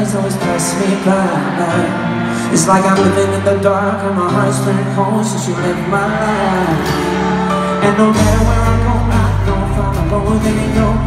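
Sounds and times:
live pop-rock band: 0.0s - 11.0s
man singing: 0.0s - 11.0s
bass line: 8.0s - 11.0s.

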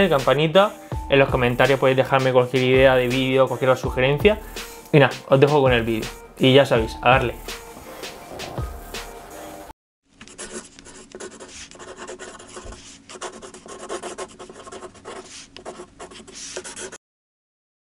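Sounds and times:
pen scratching on paper: 10.2s - 17.0s.

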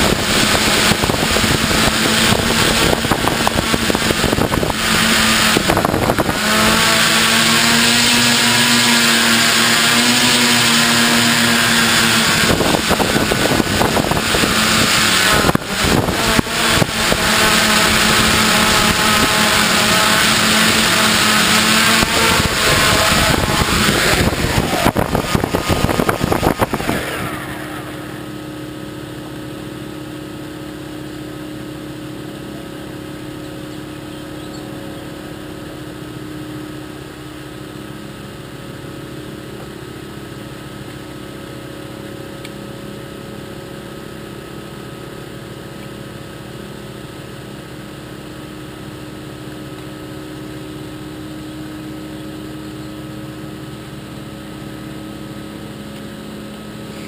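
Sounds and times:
loud rushing noise: 0.0s - 29.8s
engine humming steadily: 0.0s - 57.0s.

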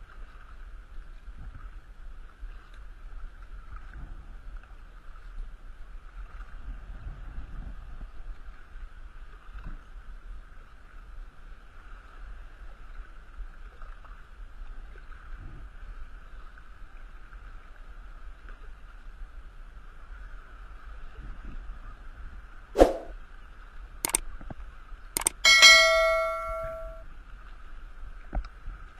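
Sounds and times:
wind rumble on microphone: 0.0s - 22.7s.

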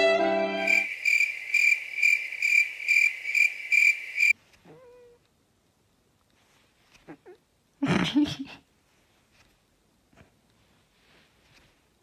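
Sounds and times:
violin music: 0.0s - 0.8s
crickets chirping: 0.6s - 4.4s.

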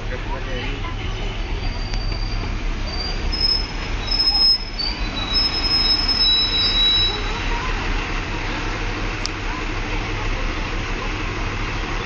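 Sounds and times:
high-pitched squealing: 1.6s - 7.5s.

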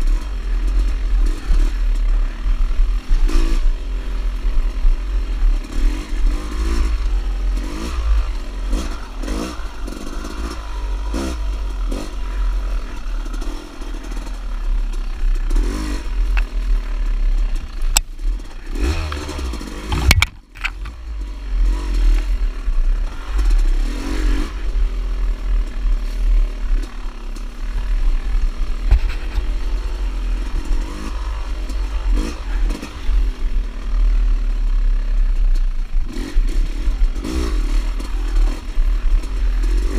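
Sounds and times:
dirt bike engine revving: 0.0s - 34.6s, 36.0s - 39.9s
bike knocking over rough ground: 19.9s - 21.0s.

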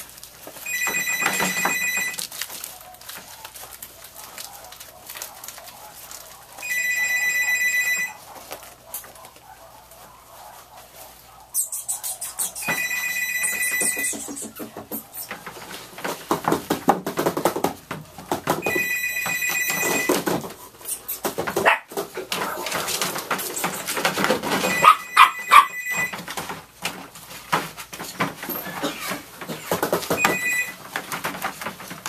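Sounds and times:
telephone ringing: 0.6s - 2.3s, 6.6s - 8.3s, 12.6s - 14.6s, 18.6s - 20.4s, 24.4s - 26.4s, 30.1s - 31.0s
puppies yapping: 2.5s - 15.6s, 20.6s - 26.1s.

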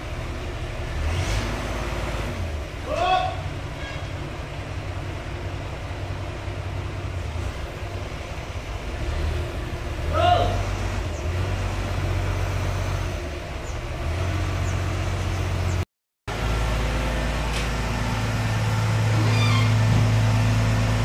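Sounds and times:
diesel engine running: 0.0s - 21.0s
high-pitched squeal: 19.1s - 20.2s.

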